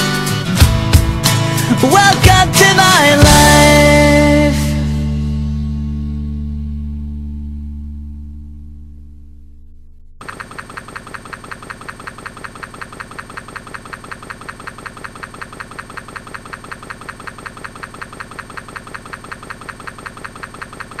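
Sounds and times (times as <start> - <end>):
pulsing buzz: 8.0 - 21.0.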